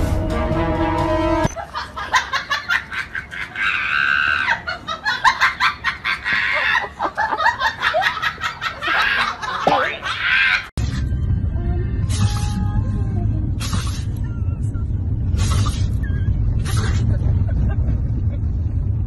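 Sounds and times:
music: 0:00.0 - 0:01.5, 0:10.8 - 0:13.4.

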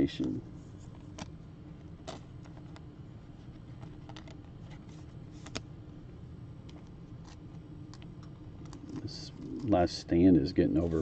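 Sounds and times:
trading cards clicking and rustling: 0:03.5 - 0:05.7, 0:06.7 - 0:09.8.

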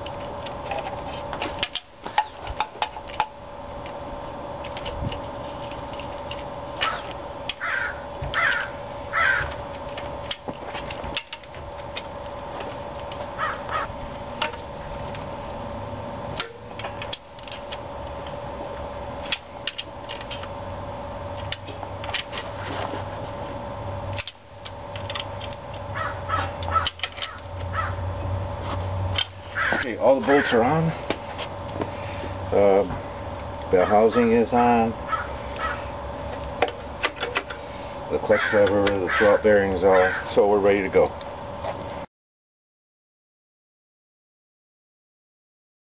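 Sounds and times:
steady background hum: 0:00.0 - 0:42.1
crow cawing: 0:07.6 - 0:09.6, 0:13.4 - 0:13.9, 0:26.0 - 0:27.0, 0:27.7 - 0:28.0, 0:29.5 - 0:30.6, 0:35.1 - 0:35.9, 0:38.4 - 0:39.4, 0:40.0 - 0:40.3.

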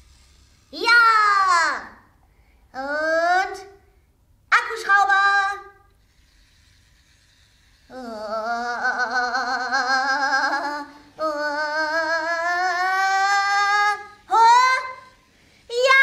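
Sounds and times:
woman humming buzzing imitation: 0:07.6 - 0:15.2.

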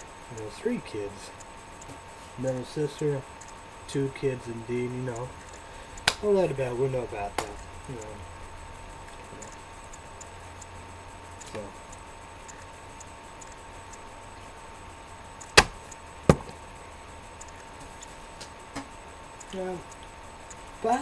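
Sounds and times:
faint steady hum: 0:00.0 - 0:21.0
sharp knocks: 0:15.6 - 0:16.6.

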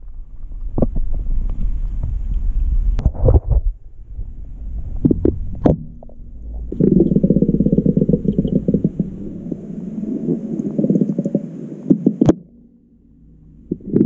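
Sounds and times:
underwater crackle of air bubbles: 0:05.0 - 0:12.6.

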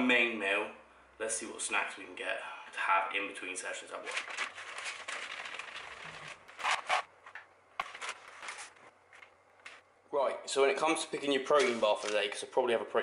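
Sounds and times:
plastic bag rustling: 0:04.0 - 0:09.8, 0:11.5 - 0:12.4.

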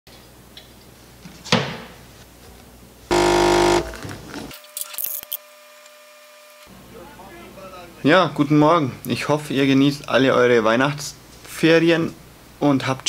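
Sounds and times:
coffee machine pump buzzing: 0:03.1 - 0:03.9.

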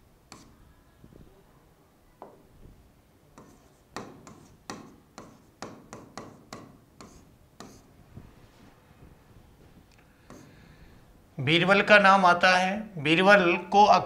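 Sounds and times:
pen tapping and scraping whiteboard: 0:00.3 - 0:00.6, 0:03.4 - 0:07.9, 0:10.2 - 0:10.6.

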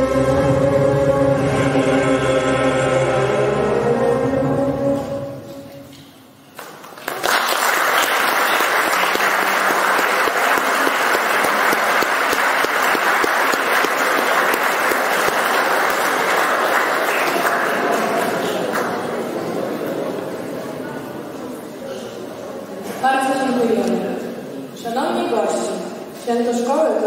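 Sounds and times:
music: 0:00.0 - 0:05.9
audience applause: 0:06.6 - 0:20.3.

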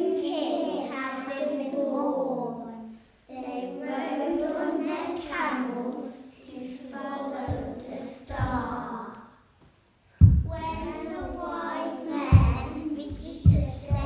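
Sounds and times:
children singing together: 0:00.0 - 0:09.4, 0:10.4 - 0:14.0
low thumps: 0:08.3 - 0:08.8, 0:10.2 - 0:11.5, 0:12.3 - 0:14.0.

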